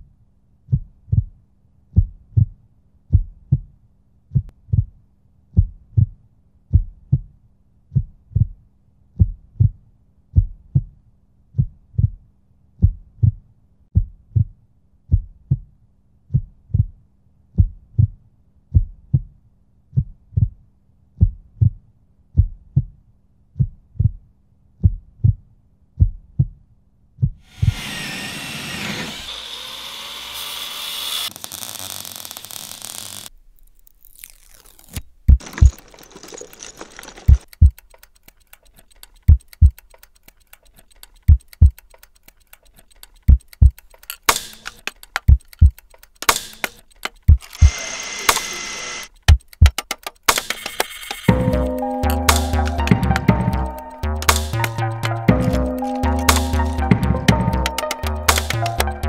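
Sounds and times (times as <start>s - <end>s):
heartbeat thumps: 0.7s - 11.0s, 11.6s - 12.2s, 12.8s - 17.0s, 17.6s - 20.6s, 21.2s - 21.8s, 22.4s - 24.2s, 24.8s - 26.6s, 27.2s - 27.4s, 37.3s - 37.8s, 39.3s - 39.8s, 41.3s - 41.8s, 43.3s - 43.8s, 45.3s - 45.8s, 47.2s - 47.4s, 49.3s - 49.8s
loud hissing workshop noise: 27.5s - 33.2s.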